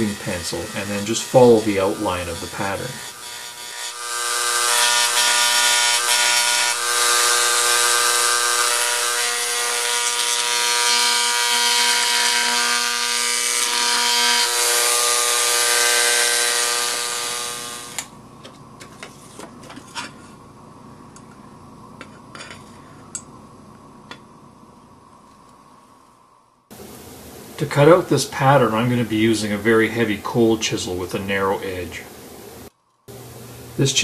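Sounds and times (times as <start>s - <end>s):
engraving pencil buzzing: 0.0s - 18.1s.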